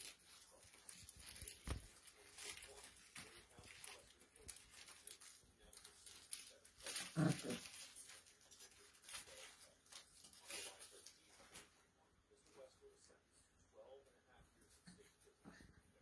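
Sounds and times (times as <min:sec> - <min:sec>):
puppies scuffling on carpet: 0:00.0 - 0:12.8.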